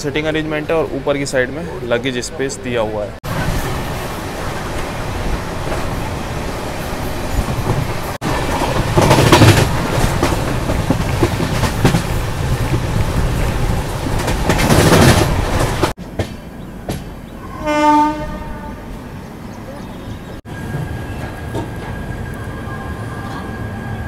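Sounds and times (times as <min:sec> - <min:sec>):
train wheels clattering on rail: 0:07.0 - 0:17.3, 0:20.6 - 0:22.2
train horn: 0:17.4 - 0:19.0.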